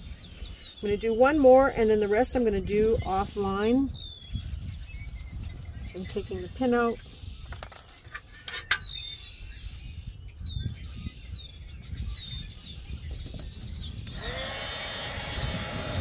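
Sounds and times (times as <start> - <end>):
bird chirping: 0.0 - 14.4
wind rumble on microphone: 0.0 - 16.0
heat gun whining and blowing: 14.0 - 16.0.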